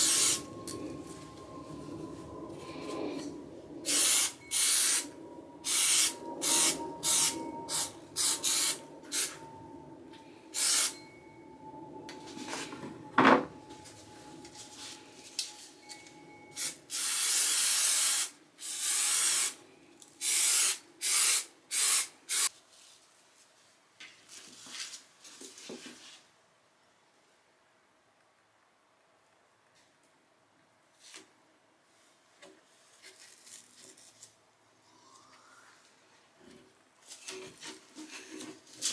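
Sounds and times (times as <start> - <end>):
aerosol spray hissing: 0.0 - 0.4, 3.9 - 5.0, 10.6 - 11.0, 20.2 - 22.5.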